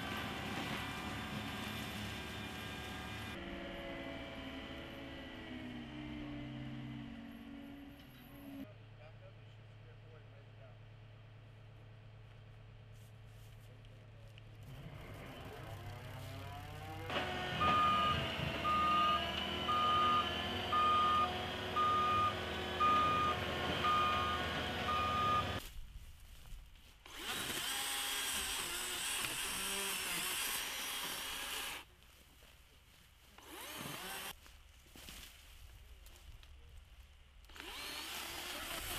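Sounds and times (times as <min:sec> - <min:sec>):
track loader engine running: 0:00.0 - 0:08.7, 0:14.6 - 0:25.6
harsher higher machine: 0:14.8 - 0:25.6, 0:37.5 - 0:38.9
reversing alarm beeps: 0:17.6 - 0:25.6.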